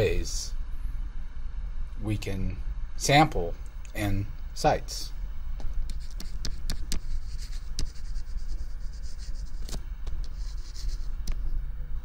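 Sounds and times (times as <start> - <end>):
steady low hum: 0.0 - 12.0
stylus tapping and scratching: 5.6 - 11.5.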